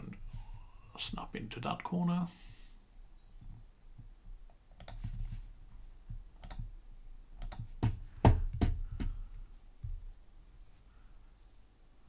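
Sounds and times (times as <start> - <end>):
computer mouse clicking: 3.4 - 5.2, 6.4 - 6.7, 7.4 - 7.7.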